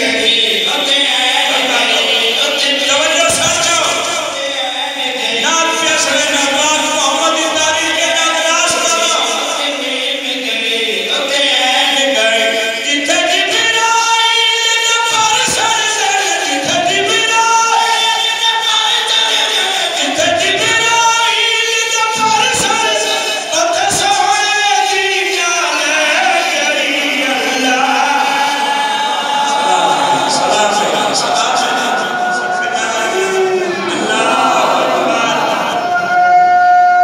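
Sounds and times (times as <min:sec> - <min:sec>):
men singing in chorus: 0:08.7 - 0:13.9, 0:22.2 - 0:36.1.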